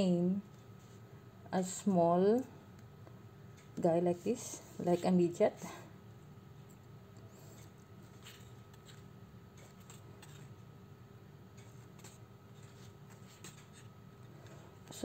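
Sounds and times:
paper pages turning: 7.4s - 10.6s.

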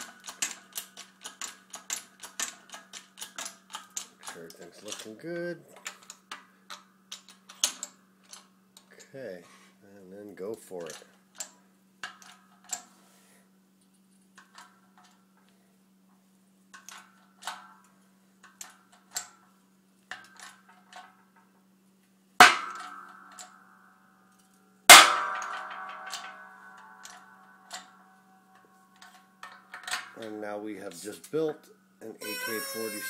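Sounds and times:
loud ringing metal bangs: 22.4s - 23.4s, 24.9s - 27.5s.

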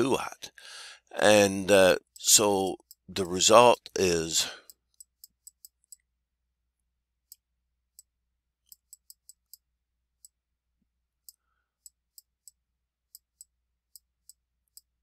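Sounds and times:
stylus clicking on tablet screen: 4.7s - 6.2s, 7.2s - 10.5s, 11.2s - 15.0s.

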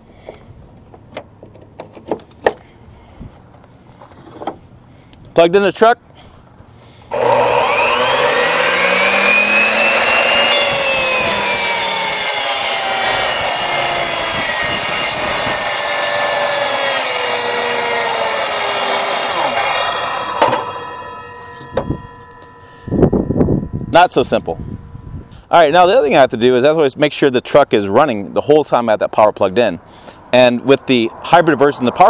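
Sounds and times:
miter saw cutting wood: 7.1s - 22.6s.

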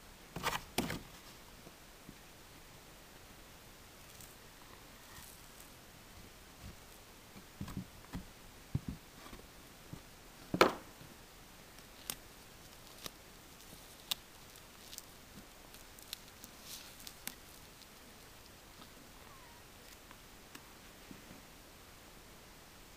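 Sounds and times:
aluminium foil crinkling: 11.7s - 20.2s.

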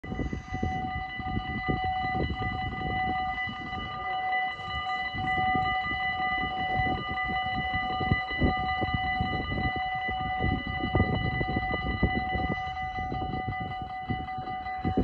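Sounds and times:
gusty low rumble: 0.0s - 15.0s.

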